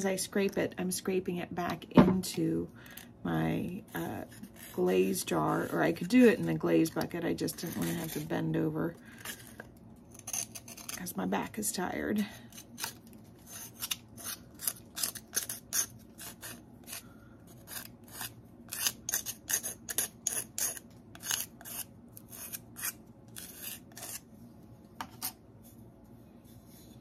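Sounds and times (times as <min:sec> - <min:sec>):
scraping glaze off clay: 0:04.0 - 0:11.1, 0:12.5 - 0:24.3.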